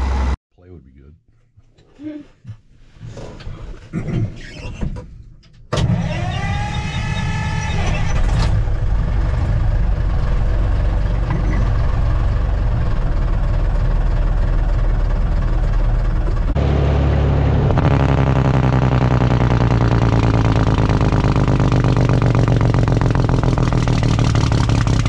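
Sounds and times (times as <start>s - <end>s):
engine whine: 0.0s - 0.4s, 5.7s - 25.0s
truck diesel engine starting: 0.0s - 0.4s, 5.7s - 25.0s
truck engine idling: 8.5s - 25.0s.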